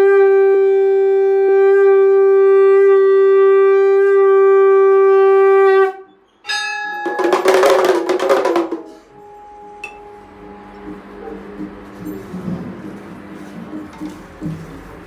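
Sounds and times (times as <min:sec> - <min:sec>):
conch shell blast: 0:00.0 - 0:11.3
rapid strokes on brass gong: 0:06.5 - 0:13.9.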